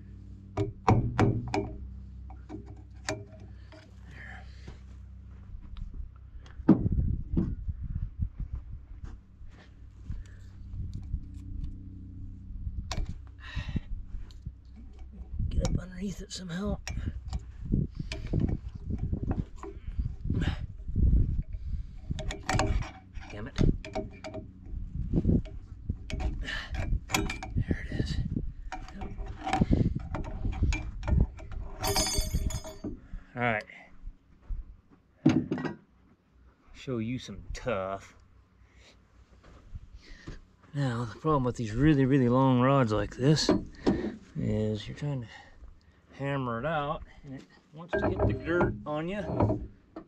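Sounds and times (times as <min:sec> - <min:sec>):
hand tool tapping on metal: 0:00.6 - 0:03.8, 0:47.9 - 0:50.0
heavy thuds: 0:06.6 - 0:07.6
metal pick clicking and scraping: 0:16.8 - 0:19.9, 0:22.0 - 0:24.5.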